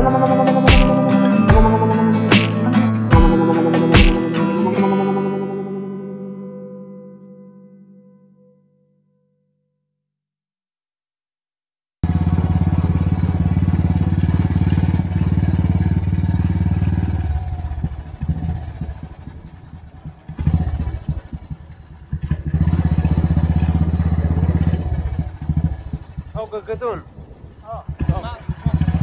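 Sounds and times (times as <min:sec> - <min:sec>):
motorcycle engine thumping: 0:04.0 - 0:04.2, 0:12.0 - 0:26.4, 0:27.3 - 0:29.0.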